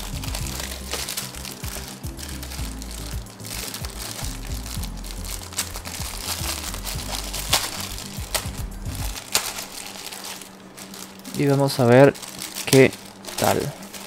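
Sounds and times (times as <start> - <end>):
background music with bass: 0.0 - 9.9
plastic bag crinkling: 0.0 - 14.0.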